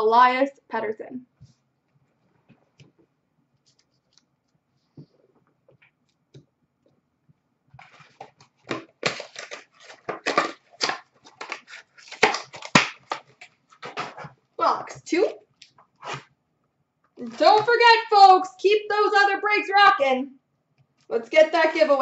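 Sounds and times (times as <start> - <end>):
packaging crinkling and tearing: 7.8 - 14.3.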